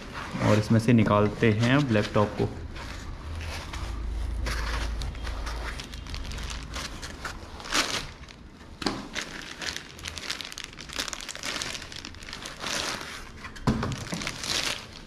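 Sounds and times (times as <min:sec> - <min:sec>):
foam packing rubbing and scraping: 0:00.0 - 0:08.4, 0:09.2 - 0:15.0
plastic bag crinkling: 0:01.4 - 0:15.0.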